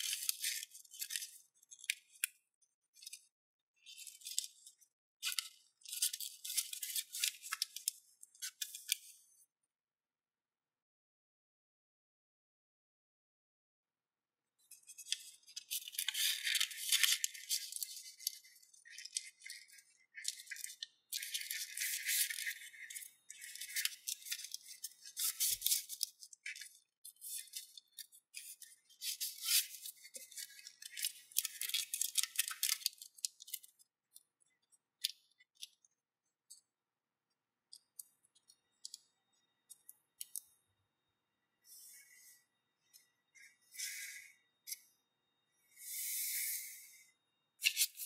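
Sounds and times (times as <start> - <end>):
paper rustling and crackling: 0.0 - 2.3, 3.8 - 9.1, 14.8 - 33.8, 47.6 - 48.0.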